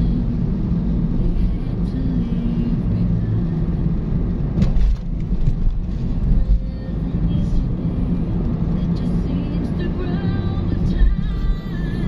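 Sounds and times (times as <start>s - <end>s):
car engine hum and road rumble: 0.0s - 12.0s.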